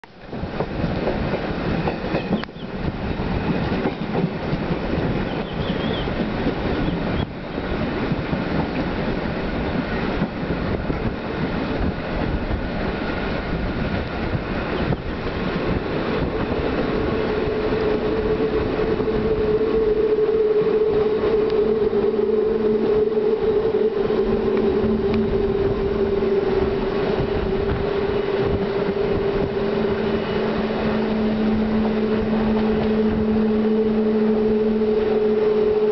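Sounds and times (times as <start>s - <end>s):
train running noise: 0.0s - 35.9s
low hum: 15.8s - 35.9s
steady hum: 17.6s - 35.9s.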